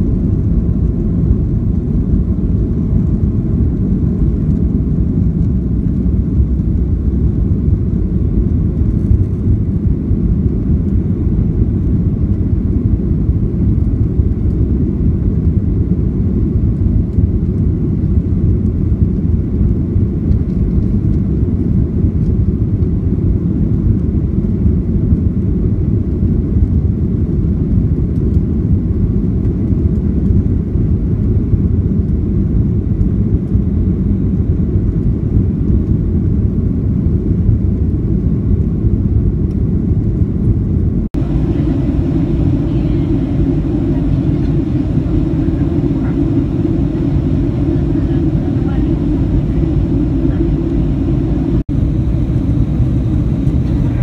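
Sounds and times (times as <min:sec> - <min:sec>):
jet engine rumble in cabin: 0:00.0 - 0:54.0
rushing air: 0:40.9 - 0:54.0.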